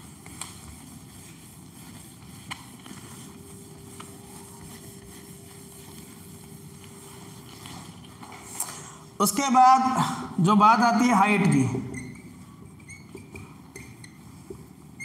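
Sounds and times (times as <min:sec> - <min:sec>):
duster rubbing on whiteboard: 0:00.0 - 0:08.6.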